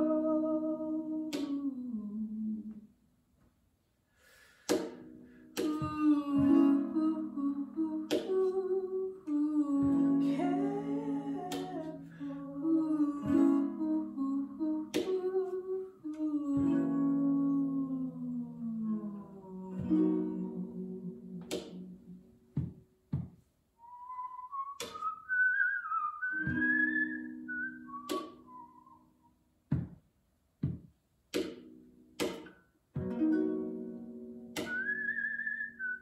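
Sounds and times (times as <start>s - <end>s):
person humming melody: 0.0s - 2.8s, 5.6s - 22.8s
strummed acoustic guitar: 9.7s - 15.5s, 16.6s - 22.8s.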